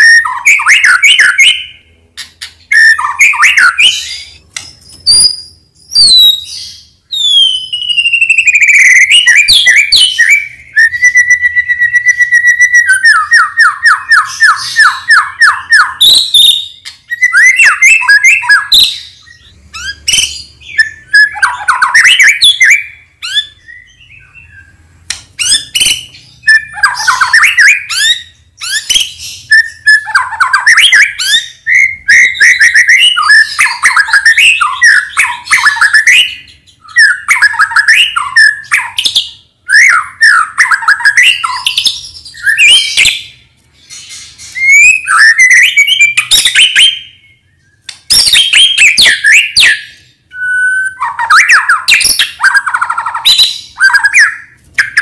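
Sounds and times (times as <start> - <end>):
bird song with rapid whistles: 0.0 - 55.0.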